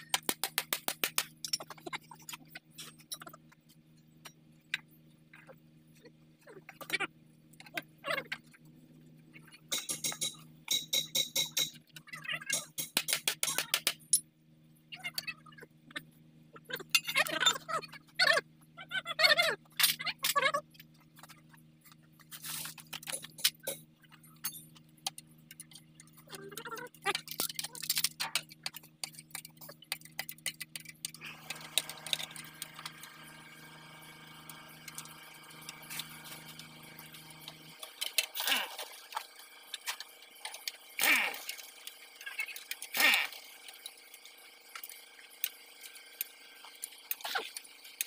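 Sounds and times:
steady background hum: 0:00.0 - 0:48.0
metal parts clinking: 0:22.4 - 0:26.2, 0:26.9 - 0:33.3.

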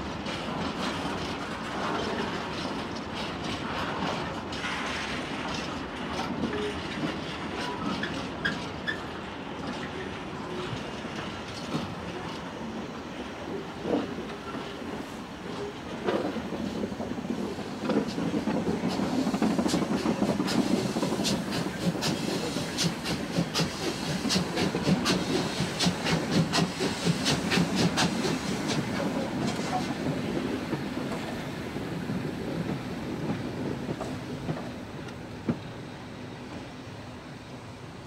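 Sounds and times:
steam locomotive rumbling past: 0:00.0 - 0:38.0
steam hissing: 0:17.3 - 0:35.4.

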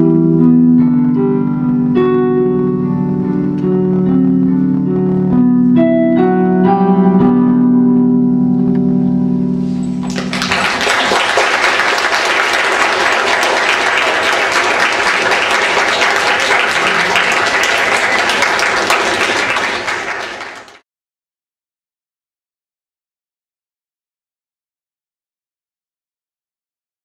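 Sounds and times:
piano chord: 0:00.0 - 0:19.9
audience applauding: 0:10.0 - 0:20.8.

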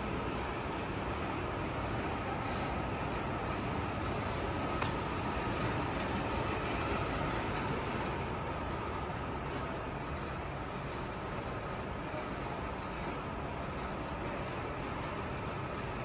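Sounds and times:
indoor hall rumble and hiss: 0:00.0 - 0:16.0.

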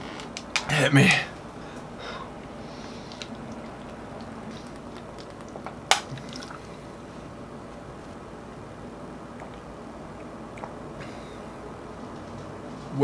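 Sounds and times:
person gulping water: 0:03.2 - 0:06.7, 0:09.4 - 0:11.2.

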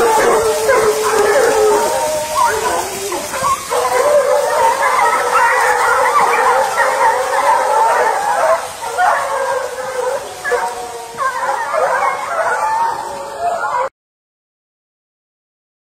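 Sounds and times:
hounds baying and howling: 0:00.0 - 0:13.9.

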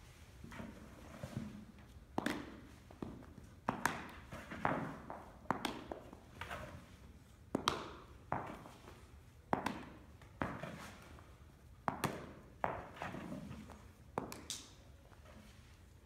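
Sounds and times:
baseballs bouncing on turf: 0:02.2 - 0:06.2, 0:07.5 - 0:08.6, 0:09.5 - 0:10.5, 0:11.9 - 0:12.8.

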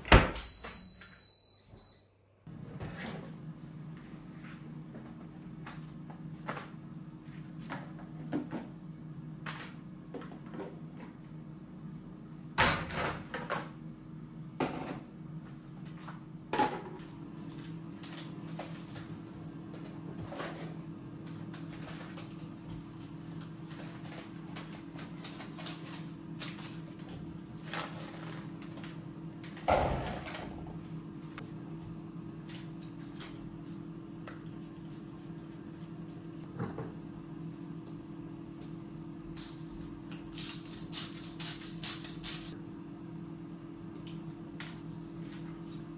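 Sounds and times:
low appliance hum: 0:00.0 - 0:45.9.

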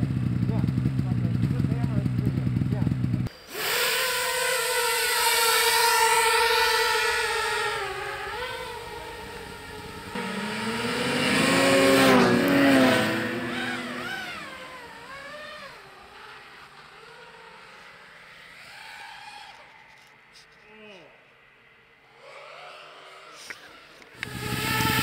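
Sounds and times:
snowmobile engines passing: 0:00.0 - 0:25.0
drone motors whining: 0:03.3 - 0:20.5, 0:22.1 - 0:25.0.

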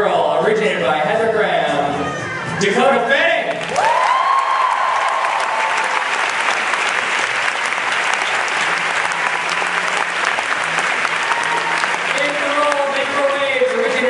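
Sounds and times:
audience applauding: 0:03.5 - 0:14.0.

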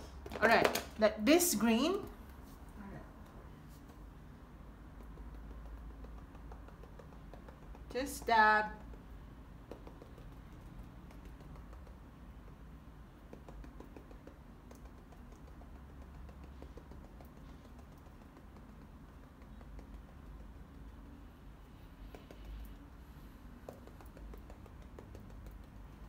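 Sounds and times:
paintbrush tapping on canvas: 0:04.9 - 0:20.8, 0:22.0 - 0:22.7, 0:23.6 - 0:26.0.

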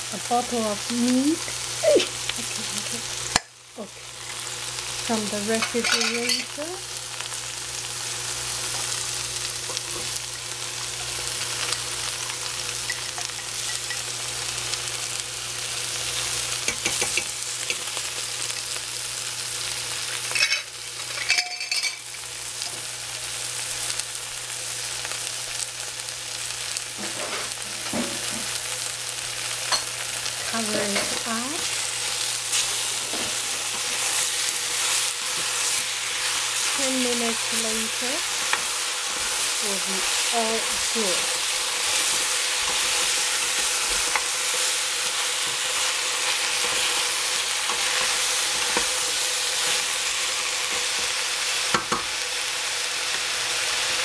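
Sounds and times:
food sizzling in hot oil: 0:00.0 - 0:54.0.

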